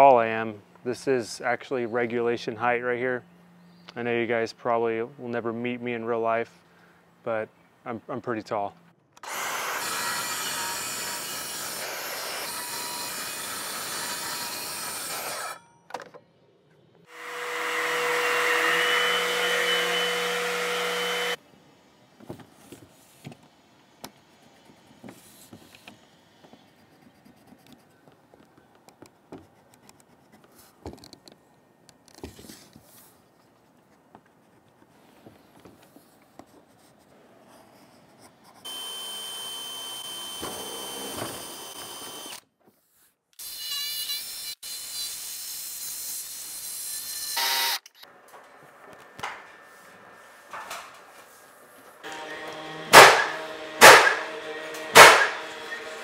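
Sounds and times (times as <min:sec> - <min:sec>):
track saw cutting hardboard: 0:09.2 - 0:15.6, 0:17.1 - 0:21.4, 0:52.0 - 0:56.0
cordless drill driving screw: 0:38.7 - 0:42.4.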